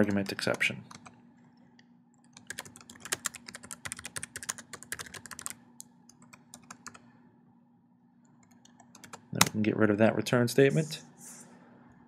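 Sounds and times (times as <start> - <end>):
typing on keyboard: 0.0 - 1.2, 2.2 - 7.0, 8.4 - 9.5.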